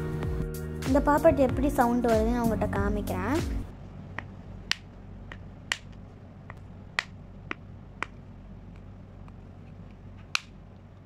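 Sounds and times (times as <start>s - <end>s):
sharp plastic clicks: 10.2s - 10.6s.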